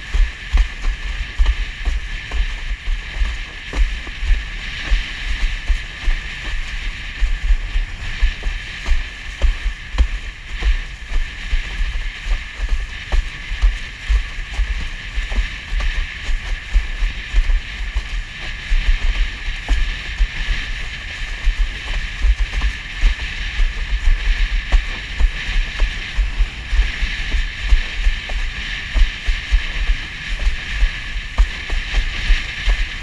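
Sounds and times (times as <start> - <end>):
rushing hiss of water: 0.0 - 33.0
wind buffeting microphone: 0.0 - 33.0
board knocking on waves: 0.1 - 20.4.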